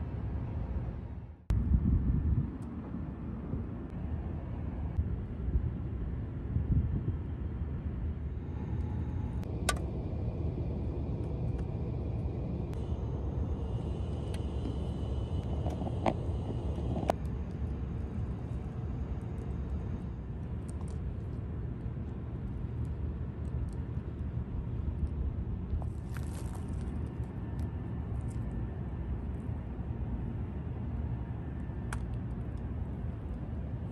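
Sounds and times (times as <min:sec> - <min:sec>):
stove burning rumble: 0:09.2 - 0:22.0.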